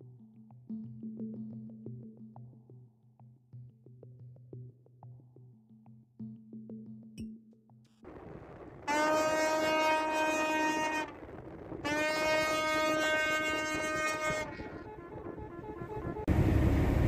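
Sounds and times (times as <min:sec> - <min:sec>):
low rumble: 0:08.1 - 0:17.0
tugboat horn blasts: 0:08.9 - 0:11.2, 0:11.8 - 0:17.0.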